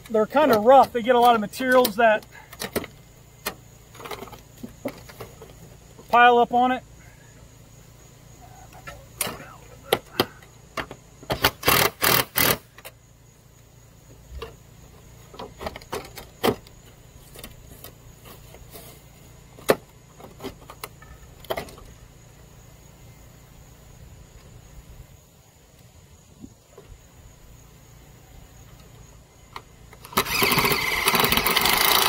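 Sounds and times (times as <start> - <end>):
cordless drill running: 30.1 - 32.0.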